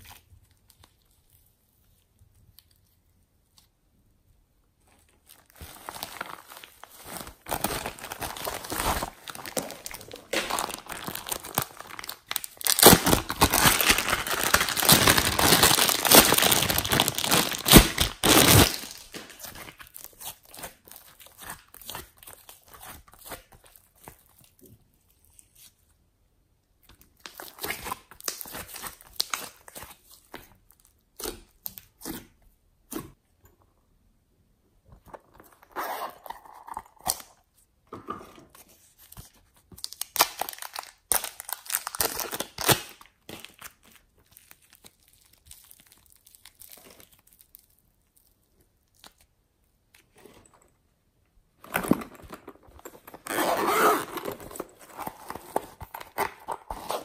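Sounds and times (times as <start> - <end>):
plastic packaging crinkling and tearing: 4.8 - 24.6, 27.2 - 30.8, 38.7 - 49.3, 51.6 - 57.0
zippered pencil case opened: 35.3 - 37.3, 51.6 - 57.0.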